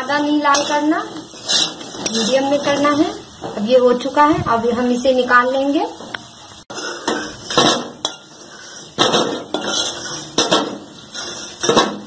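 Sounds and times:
metal spatula scraping and knocking: 0.5s - 3.0s, 6.7s - 12.0s.

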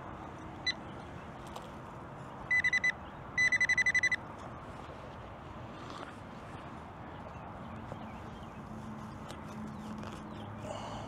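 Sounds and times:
metal detector beeping: 2.5s - 4.2s.

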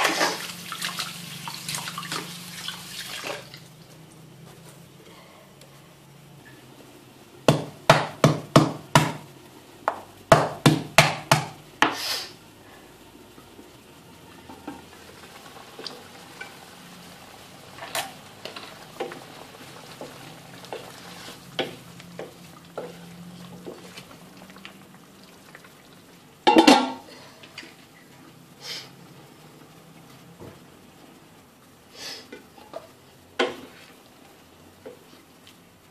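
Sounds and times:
fish simmering in sauce: 12.4s - 26.4s
spatula stirring and tapping in wok: 17.8s - 24.8s
cookware clattering: 26.5s - 27.0s.

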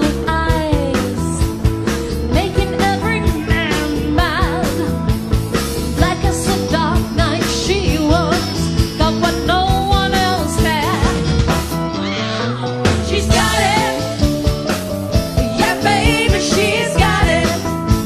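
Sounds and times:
live rock band: 0.0s - 18.0s
drums beating: 0.6s - 8.4s, 12.7s - 17.6s
woman singing with vibrato: 2.3s - 5.0s.

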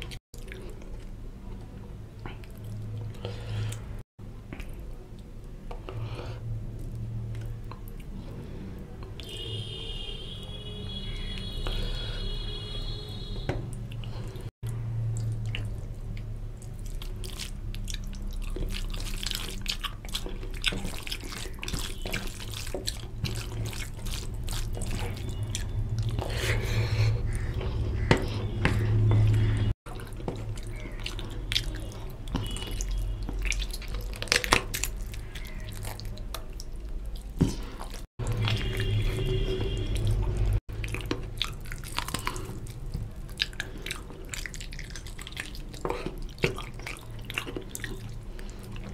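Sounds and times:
chewing and sucking: 13.9s - 48.9s.

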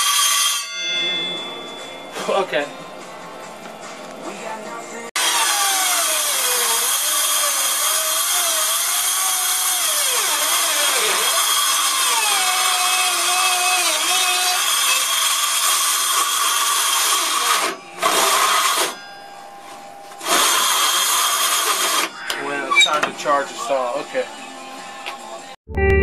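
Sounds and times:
circular saw cutting plywood: 0.0s - 0.7s, 5.2s - 19.0s, 20.2s - 23.8s.

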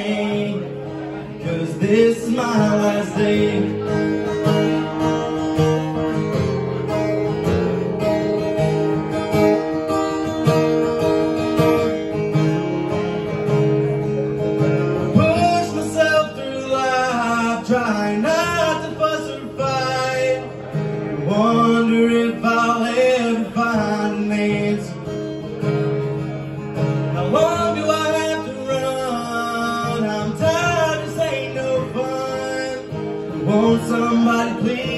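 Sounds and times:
man singing: 0.0s - 5.7s, 15.0s - 25.3s, 27.0s - 34.9s
acoustic guitar strumming: 0.0s - 34.9s.

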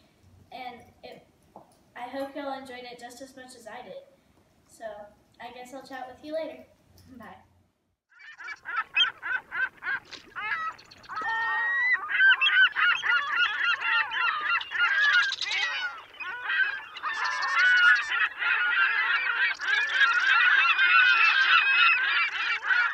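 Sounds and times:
flock of birds calling: 8.1s - 22.9s.

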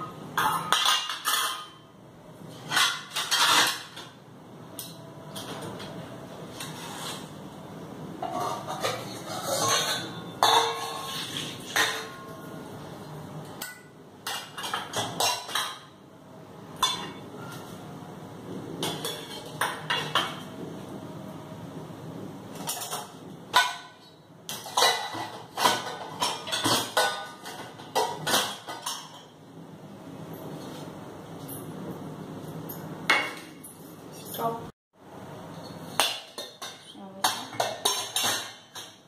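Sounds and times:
steel dishes clattering: 0.3s - 1.8s, 2.5s - 4.2s, 8.2s - 12.5s, 13.5s - 15.9s, 16.8s - 17.7s, 18.8s - 20.5s, 22.5s - 29.4s, 35.5s - 39.0s.

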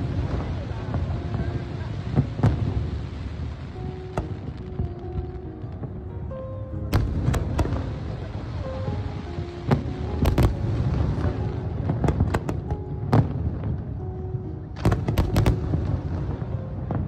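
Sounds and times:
fireworks bursting: 0.0s - 6.0s, 6.8s - 13.9s, 14.7s - 17.0s.

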